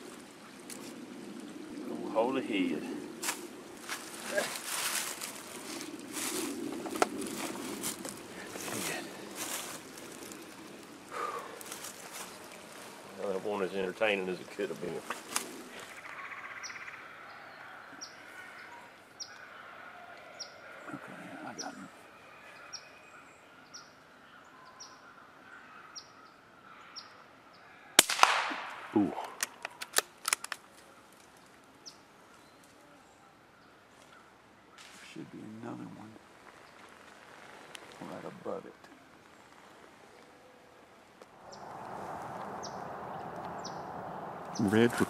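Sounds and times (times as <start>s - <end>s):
leaves and clothing rustling: 0.0s - 24.2s, 28.0s - 45.0s
faint woodland background: 0.0s - 45.0s
scraping on muddy ground: 3.2s - 13.4s.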